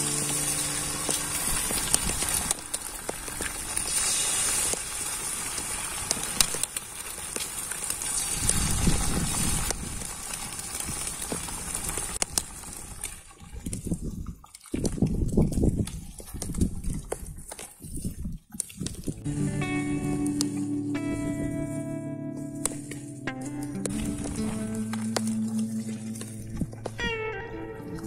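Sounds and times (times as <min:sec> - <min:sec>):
food sizzling in a pan: 0:00.0 - 0:12.2
fat popping and crackling: 0:00.0 - 0:28.0.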